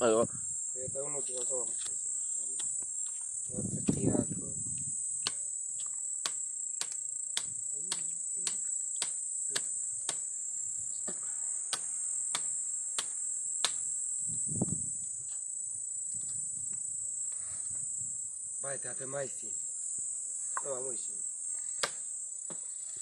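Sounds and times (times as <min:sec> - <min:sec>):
high insect drone: 0:00.0 - 0:23.0
machete chopping into tree trunk: 0:21.8 - 0:22.7.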